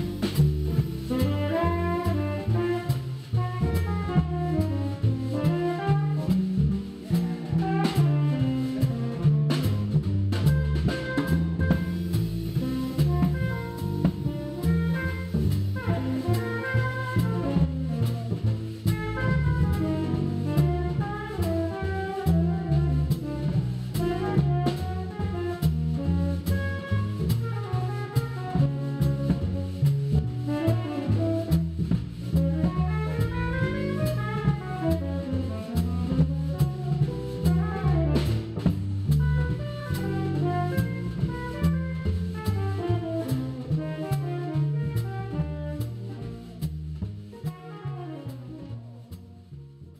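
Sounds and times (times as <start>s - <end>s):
drum cymbal beat: 0.0s - 47.3s
jazz quartet music: 0.0s - 49.9s
saxophone melody: 1.1s - 2.9s, 11.0s - 18.3s, 19.0s - 23.1s, 32.5s - 38.2s, 39.5s - 46.2s.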